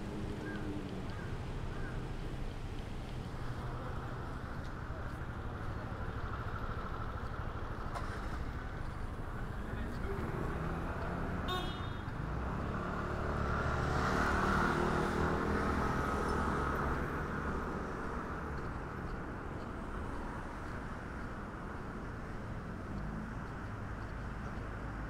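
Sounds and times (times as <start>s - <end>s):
road traffic noise: 0.0s - 25.0s
vehicle passing: 12.2s - 19.0s.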